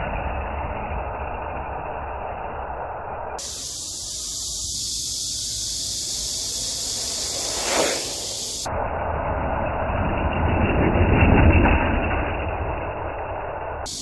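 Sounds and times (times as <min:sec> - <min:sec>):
steady rushing hiss: 0:01.6 - 0:08.7.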